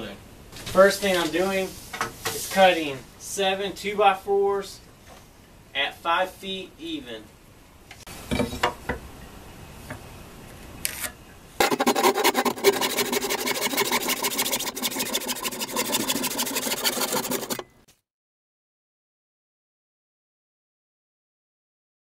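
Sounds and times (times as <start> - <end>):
handsaw cutting wood: 11.6 - 17.7.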